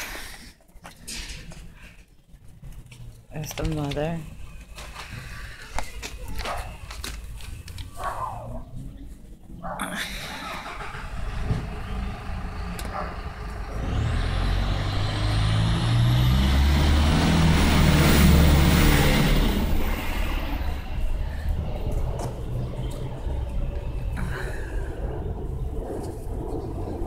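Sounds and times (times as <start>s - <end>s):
vehicle engine driving past: 10.4s - 27.0s.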